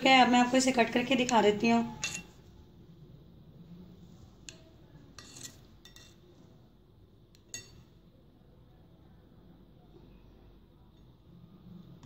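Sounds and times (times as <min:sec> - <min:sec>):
knife clinking on porcelain plate: 0:01.9 - 0:02.4, 0:07.4 - 0:07.9.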